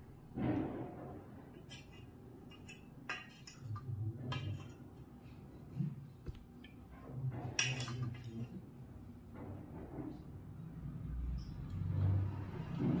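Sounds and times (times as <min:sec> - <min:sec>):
spoon scraping steel pot: 0:01.6 - 0:04.8.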